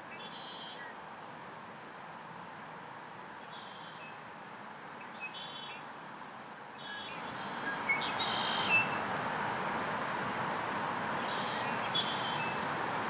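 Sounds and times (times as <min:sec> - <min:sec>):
blackbird singing: 0:00.1 - 0:00.9, 0:06.8 - 0:09.0, 0:11.3 - 0:12.6.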